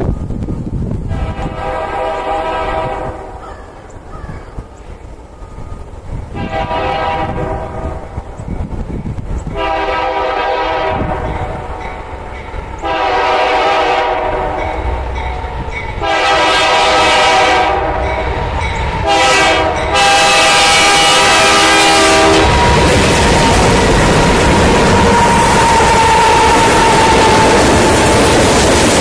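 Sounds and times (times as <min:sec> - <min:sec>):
locomotive air horn blasts: 0:01.1 - 0:03.4, 0:06.3 - 0:08.0, 0:09.5 - 0:11.6, 0:12.8 - 0:15.0, 0:16.0 - 0:18.4, 0:19.0 - 0:23.8, 0:24.4 - 0:28.2.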